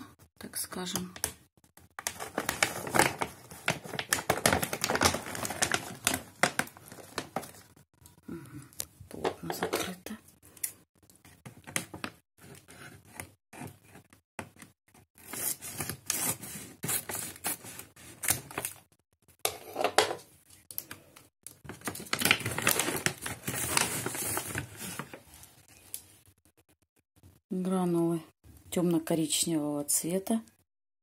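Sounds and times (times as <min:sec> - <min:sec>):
scissors snipping plastic bag: 0:02.0 - 0:07.6, 0:21.7 - 0:25.1
plastic bag crinkling: 0:02.0 - 0:07.8, 0:21.6 - 0:25.3.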